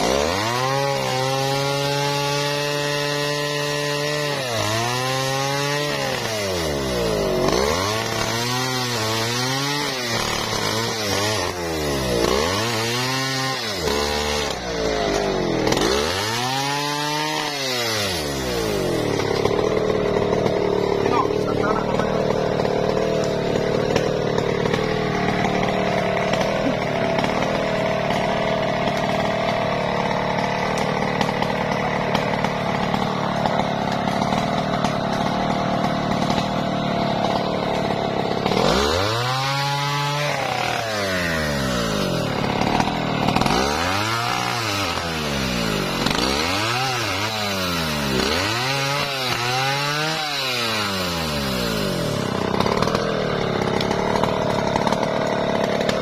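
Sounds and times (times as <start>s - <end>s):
chainsaw revving: 0.0s - 56.0s.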